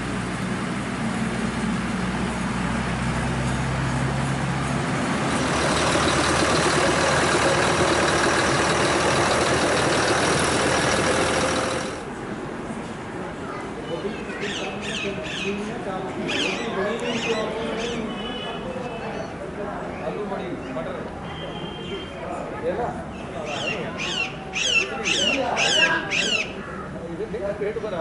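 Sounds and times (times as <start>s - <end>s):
rail motor car engine running: 0.0s - 12.4s.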